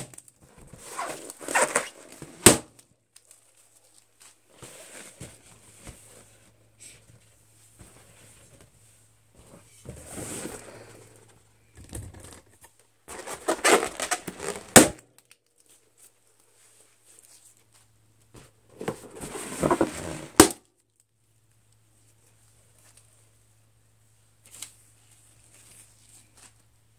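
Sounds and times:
balloon popping: 13.1s - 15.0s.

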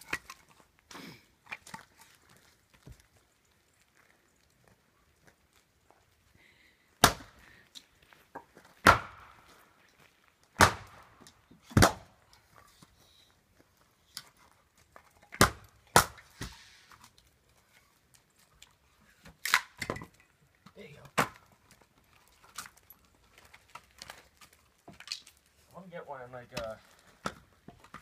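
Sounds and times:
axe splitting firewood: 0.0s - 2.2s, 7.0s - 7.6s, 8.3s - 9.6s, 10.5s - 12.9s, 14.1s - 18.0s, 18.7s - 25.5s, 26.5s - 28.0s.

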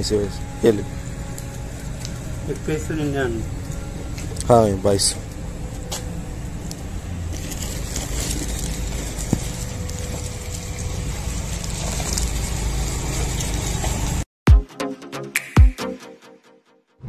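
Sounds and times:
low rumbling noise: 0.0s - 12.7s
plastic bag crinkling: 7.3s - 12.3s.

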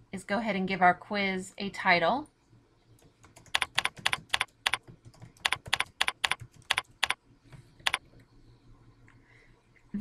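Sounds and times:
computer keyboard typing: 3.0s - 7.2s, 7.8s - 8.0s.

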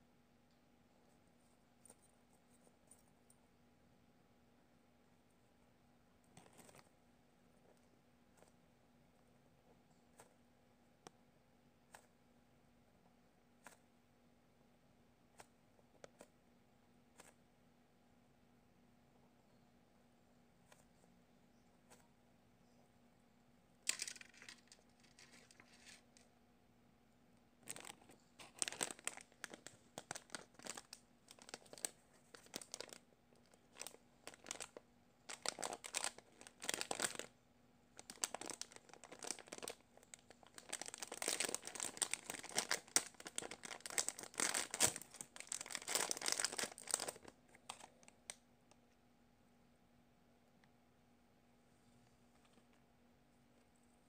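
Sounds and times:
plastic bag crinkling: 23.8s - 26.2s, 27.6s - 37.3s, 38.0s - 48.1s.

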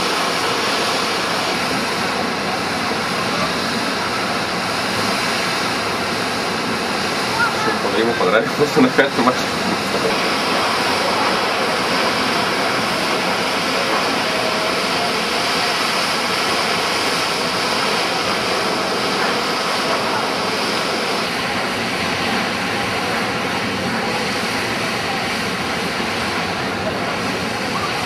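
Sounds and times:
water gushing under pressure: 0.0s - 28.0s.

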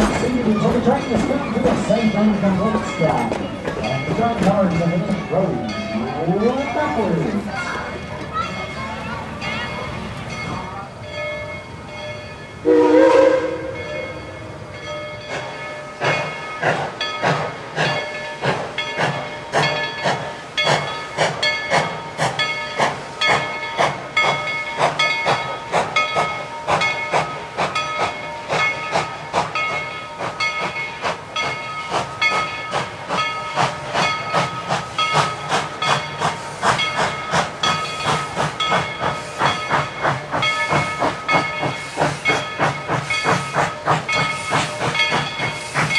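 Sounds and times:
steam hissing: 0.0s - 11.0s, 11.7s - 45.9s
steam whistle blast: 12.6s - 13.8s.

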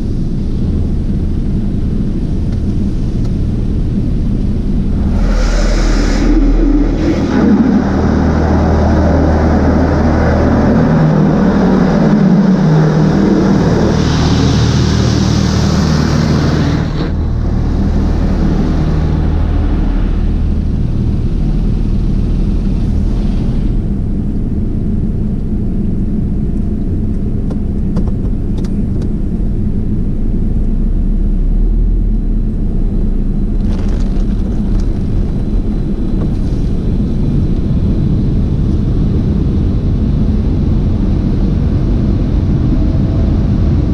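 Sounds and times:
car wash machinery running: 0.0s - 30.8s, 32.4s - 43.9s
strong hiss: 4.7s - 10.8s.

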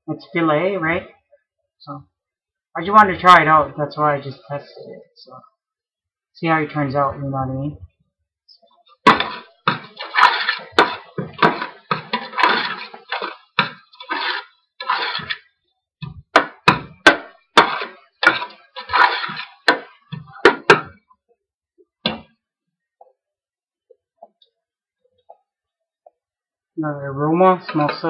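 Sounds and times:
metal spoon scraping a pot: 9.0s - 15.5s, 16.4s - 20.8s.

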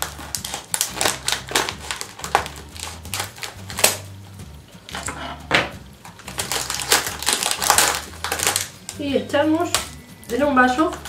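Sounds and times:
plastic packet crinkling: 0.0s - 4.0s, 6.1s - 9.0s
scissors snipping plastic: 0.0s - 4.1s, 6.0s - 9.0s.

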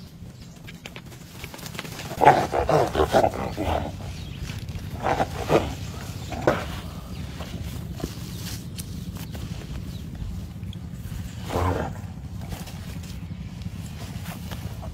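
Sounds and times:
wild boar squealing: 2.0s - 7.0s.

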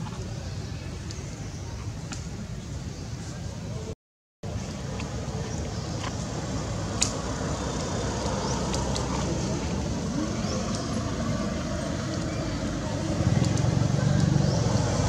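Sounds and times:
vehicle engine humming: 4.4s - 15.0s.

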